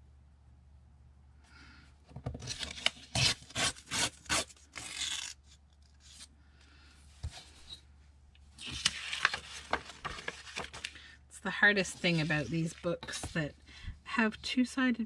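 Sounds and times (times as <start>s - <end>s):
paper page tearing: 2.5s - 6.3s, 8.6s - 11.0s.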